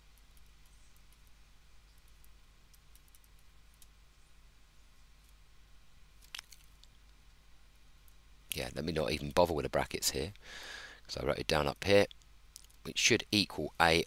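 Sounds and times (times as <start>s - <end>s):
faint clicks: 0.0s - 4.0s, 12.0s - 12.8s.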